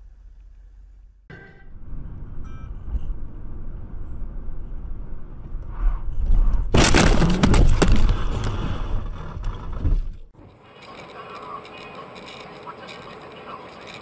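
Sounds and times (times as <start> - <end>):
road noise: 0.0 - 14.0
sharp cracks: 6.7 - 8.9
car crash impact: 6.7 - 10.2.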